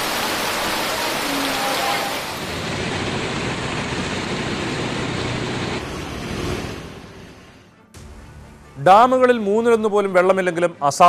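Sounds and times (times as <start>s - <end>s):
flooded river rushing: 0.0s - 7.2s
heavy rain pouring: 0.0s - 7.6s.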